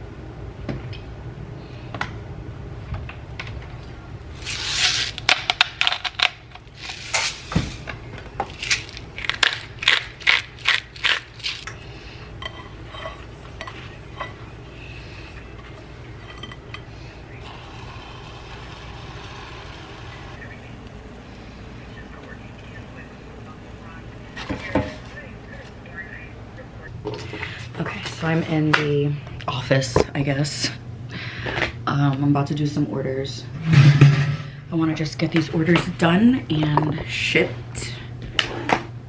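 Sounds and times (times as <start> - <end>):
seasoning grinder crunching clicks: 8.5 - 11.7.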